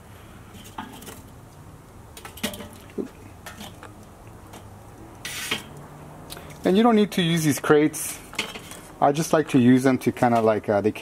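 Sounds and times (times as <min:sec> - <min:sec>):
metal tongs clinking on charcoal: 0:00.6 - 0:05.8, 0:08.3 - 0:08.9.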